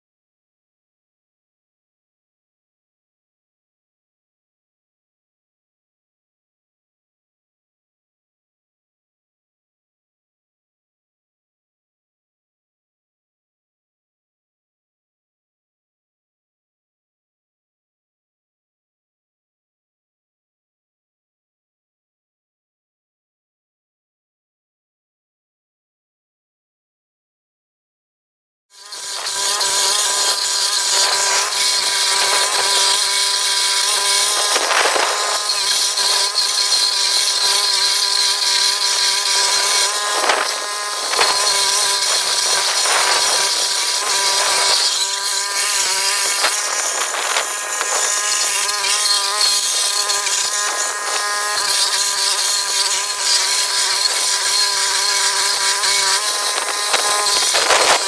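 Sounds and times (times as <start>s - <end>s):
cutter grinding into stump: 28.8s - 58.0s
stump grinder engine running: 28.8s - 58.0s.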